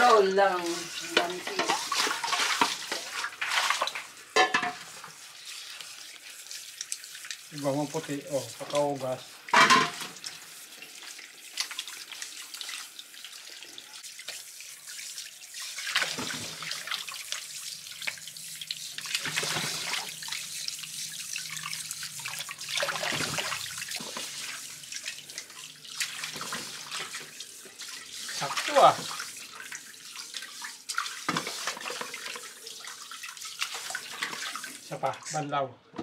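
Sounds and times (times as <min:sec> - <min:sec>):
tap water running into metal basin: 0:00.0 - 0:35.4
water splashing: 0:00.0 - 0:35.6.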